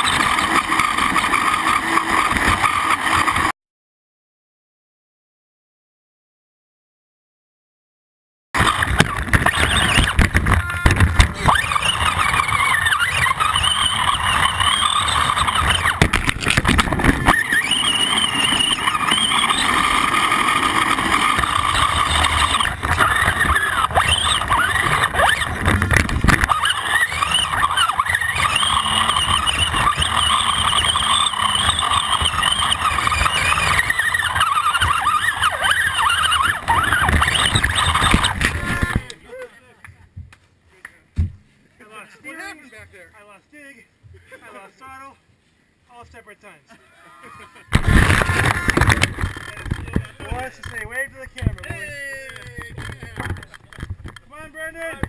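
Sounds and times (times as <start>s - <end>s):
knocks and rattle: 8.6s - 11.6s, 15.2s - 17.4s, 47.8s - 54.3s
electric motor gear whine: 8.6s - 39.1s.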